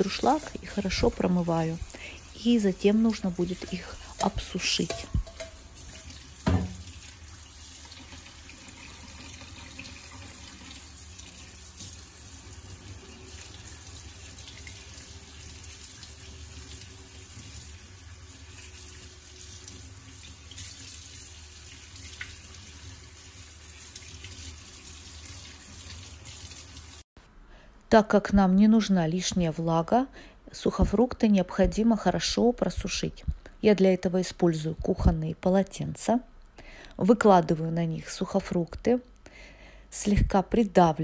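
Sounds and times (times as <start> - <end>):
tap running into steel sink: 3.7 - 7.0.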